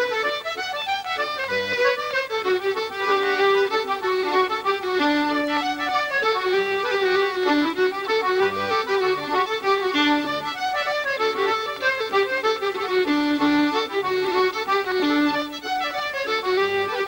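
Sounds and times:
accordion and fiddle folk tune: 0:00.0 - 0:17.0
accordion bass note: 0:00.0 - 0:17.0.

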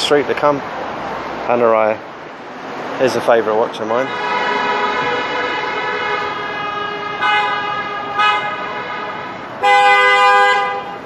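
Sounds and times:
car horns honking: 0:03.9 - 0:11.0.

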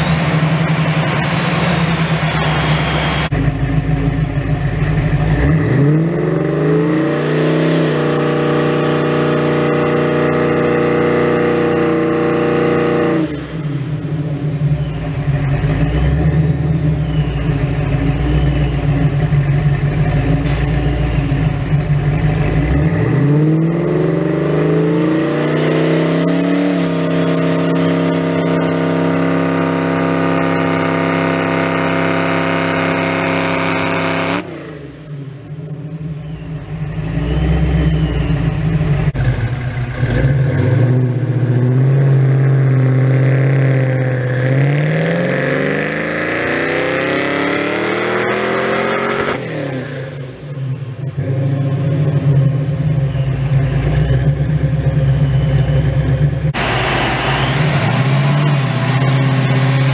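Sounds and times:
car engine revving on a dyno: 0:05.3 - 0:13.6, 0:22.4 - 0:35.3, 0:39.9 - 0:50.4, 0:56.5 - 0:59.9.

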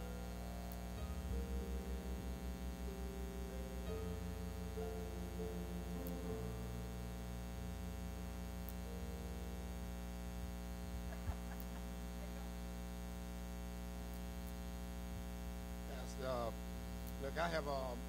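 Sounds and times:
held keyboard notes: 0:00.0 - 0:12.2
electrical mains hum: 0:00.0 - 0:18.0.

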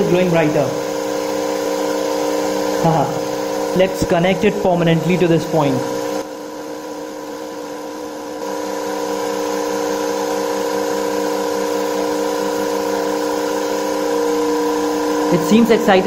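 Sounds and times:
electric motor humming and whining: 0:00.0 - 0:16.0.

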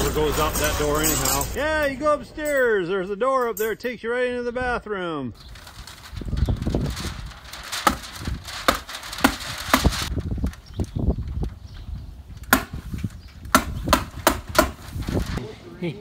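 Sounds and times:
plastic wrap rustling: 0:05.4 - 0:11.5, 0:14.8 - 0:15.4.

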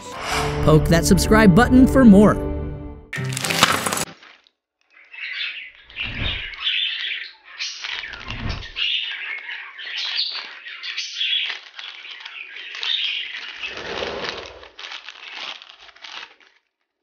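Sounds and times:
budgerigars chattering: 0:05.0 - 0:13.8.

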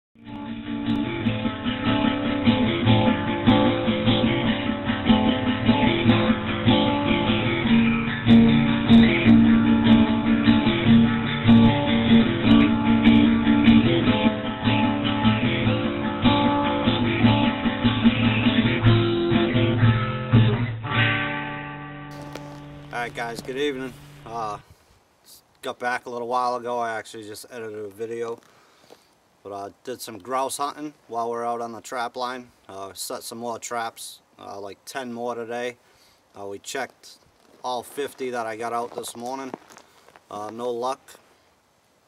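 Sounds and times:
acoustic guitar plucked and strummed: 0:00.2 - 0:24.6.

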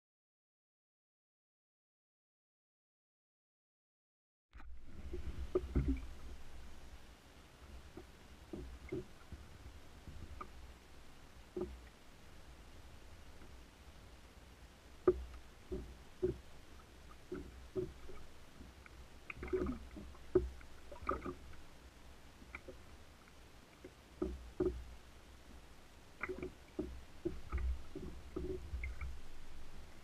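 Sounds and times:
waves slapping plastic kayak hull: 0:04.6 - 0:06.8, 0:19.3 - 0:21.6, 0:26.2 - 0:30.0.

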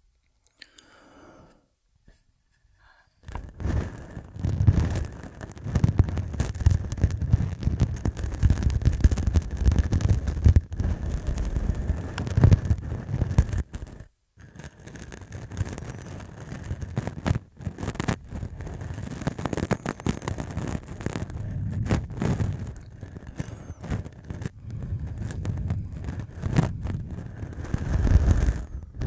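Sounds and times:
stubble scratching on microphone: 0:03.2 - 0:29.0
heavy low rumble: 0:18.2 - 0:29.0.

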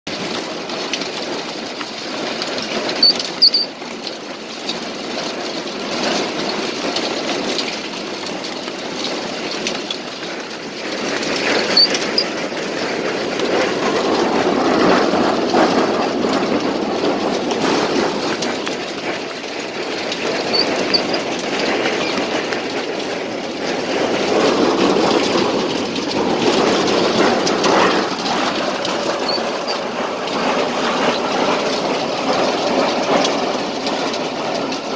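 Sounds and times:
short high squeak: 0:03.0 - 0:03.7, 0:11.6 - 0:12.3, 0:29.2 - 0:29.4.

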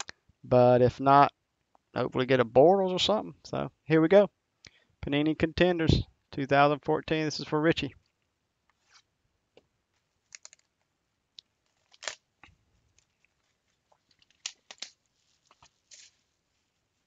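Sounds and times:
cardboard box crinkling: 0:12.9 - 0:16.4.

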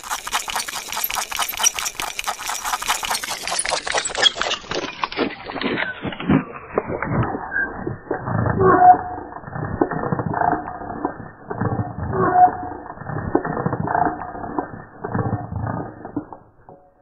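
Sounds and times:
slow creaks of rapid clicks: 0:00.0 - 0:06.4.

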